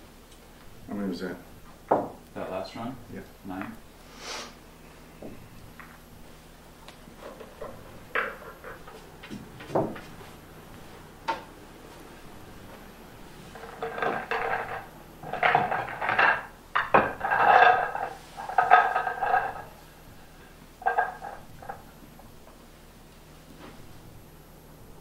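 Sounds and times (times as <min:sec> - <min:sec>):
pool balls clacking: 0:05.2 - 0:06.1, 0:07.0 - 0:22.7.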